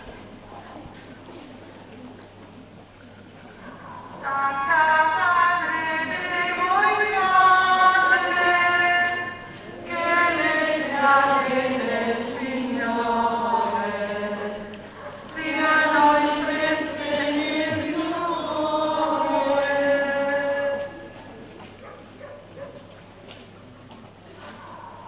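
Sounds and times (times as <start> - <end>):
group singing a hymn: 4.2 - 21.2.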